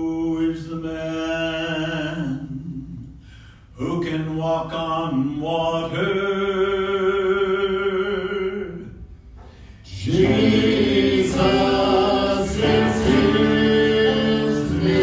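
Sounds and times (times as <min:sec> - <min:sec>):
worship song singing: 0:03.8 - 0:15.0.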